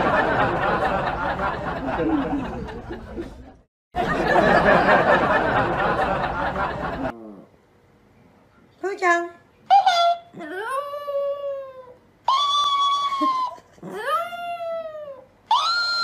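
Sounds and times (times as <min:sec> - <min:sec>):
people talking and laughing: 0:00.0 - 0:07.2.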